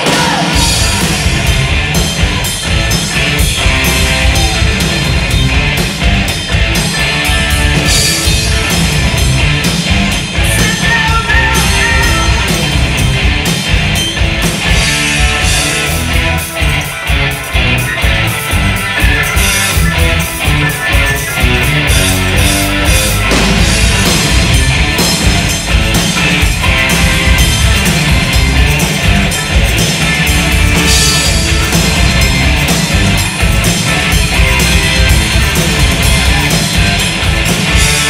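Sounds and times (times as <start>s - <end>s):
lead vocal: 0.0s - 1.6s, 10.4s - 12.8s
live rock band playing: 0.0s - 38.0s.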